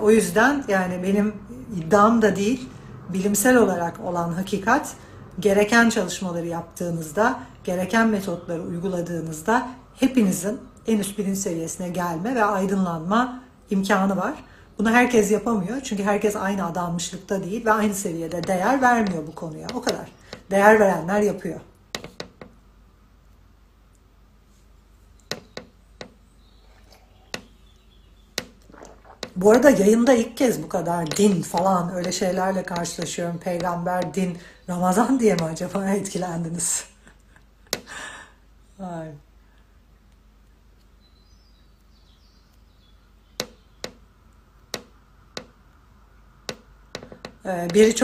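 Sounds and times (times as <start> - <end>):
person drinking and swallowing: 28.5 - 29.4.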